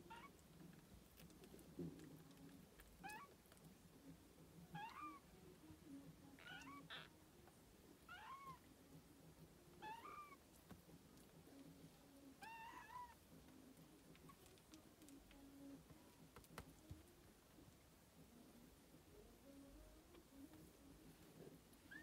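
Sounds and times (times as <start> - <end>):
kittens mewing: 9.8 - 10.4.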